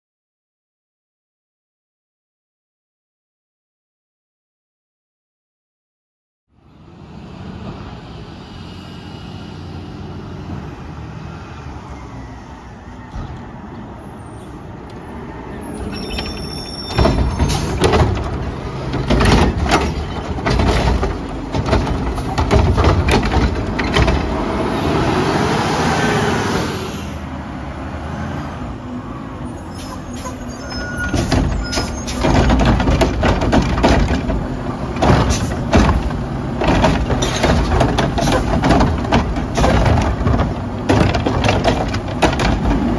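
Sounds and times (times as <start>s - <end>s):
carts clanking: 15.6s - 24.6s, 29.7s - 42.9s
garbage truck engine revving: 17.0s - 27.0s.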